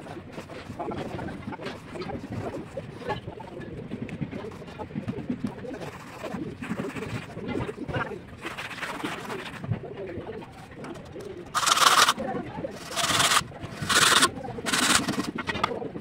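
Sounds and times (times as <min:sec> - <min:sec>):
faint mortar handling: 0:11.5 - 0:15.7
pipe scraping wet mortar: 0:11.5 - 0:15.7.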